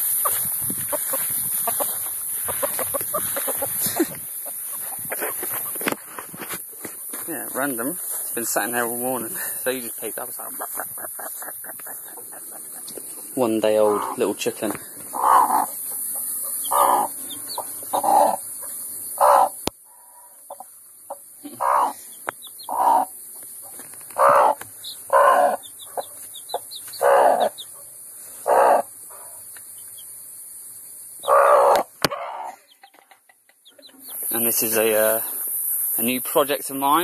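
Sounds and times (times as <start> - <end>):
chick peeping: 0.0 - 6.0, 9.8 - 19.7, 20.4 - 27.8, 31.1 - 36.0
hen clucking: 0.0 - 6.0, 9.0 - 23.2, 24.1 - 27.8, 28.4 - 29.3, 31.2 - 34.9.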